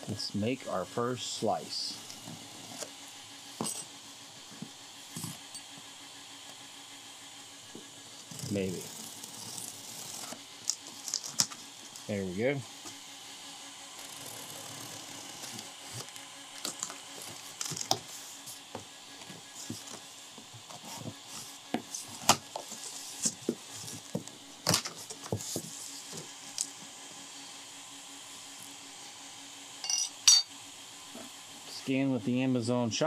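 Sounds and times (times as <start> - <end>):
knife cutting packing tape: 8.2 - 11.6, 14.0 - 18.0
cardboard flaps rustling: 16.6 - 26.3.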